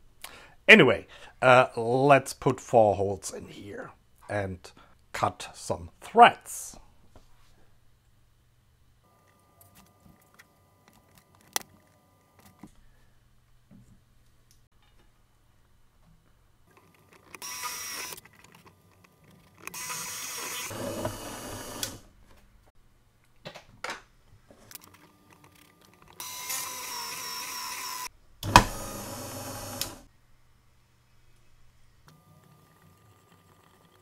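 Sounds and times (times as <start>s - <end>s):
drill press motor running: 19.7s - 22.0s, 26.2s - 30.1s.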